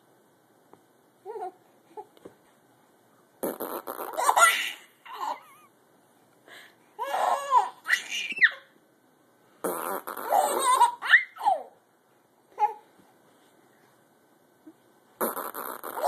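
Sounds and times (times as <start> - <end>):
man making fart noises with mouth: 3.4 - 4.4, 9.6 - 10.6, 15.2 - 16.0
baby giggling and squealing: 3.8 - 5.7, 7.0 - 8.7, 9.9 - 11.8.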